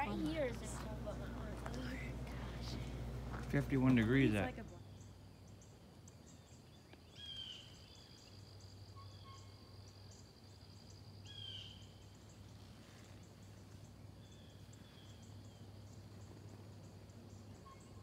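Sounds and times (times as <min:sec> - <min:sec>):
insects trilling: 0:00.0 - 0:18.0
low steady hum: 0:00.0 - 0:18.0.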